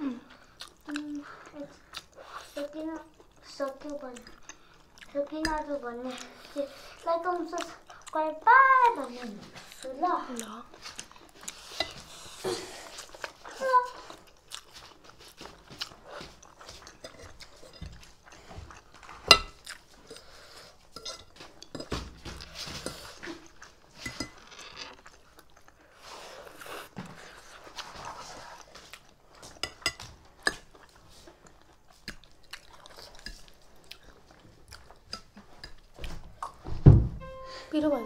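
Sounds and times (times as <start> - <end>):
slurping and chewing noodles: 0.1 - 36.6
cutlery clinking on plates: 19.2 - 19.6, 21.0 - 23.2, 24.0 - 24.6, 29.5 - 30.7.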